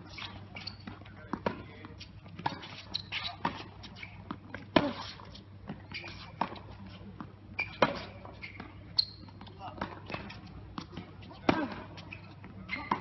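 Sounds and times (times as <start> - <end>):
shoe squeaks: 0.0 - 1.2, 1.8 - 13.0
tennis racket hitting ball: 9.8 - 12.0.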